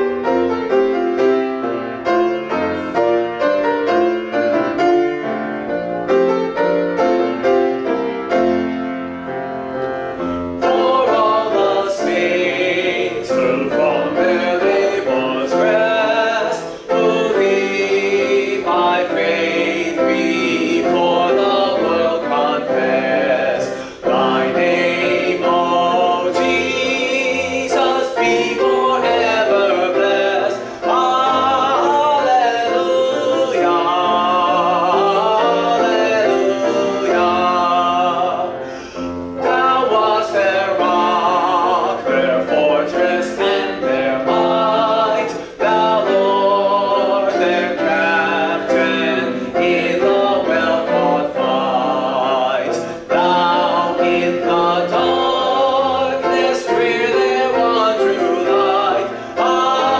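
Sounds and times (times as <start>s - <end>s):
grand piano: 0.0s - 59.9s.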